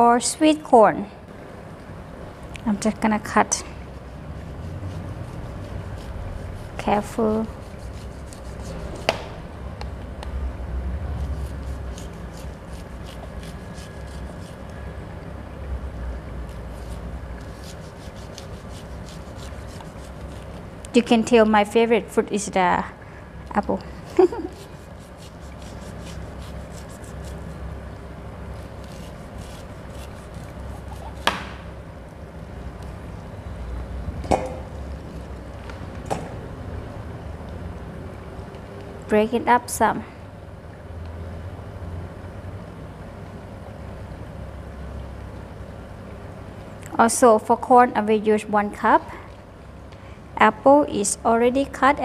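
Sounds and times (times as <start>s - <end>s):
steady low hum: 0.0s - 52.0s
knife scraping corn cob: 4.4s - 9.2s, 11.2s - 14.7s, 16.5s - 20.6s, 24.0s - 27.6s, 28.6s - 31.4s.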